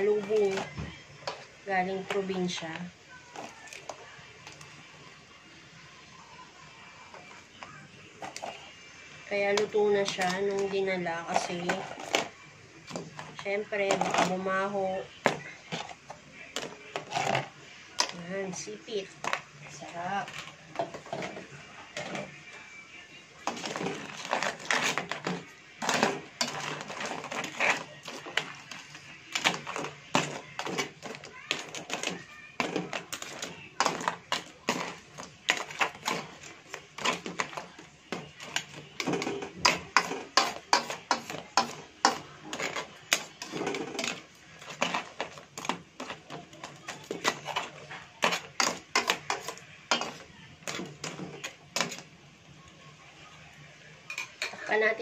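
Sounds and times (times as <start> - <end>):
spatula scraping a metal wok: 0.0 - 2.7, 9.3 - 12.3, 12.9 - 22.3, 23.4 - 52.1.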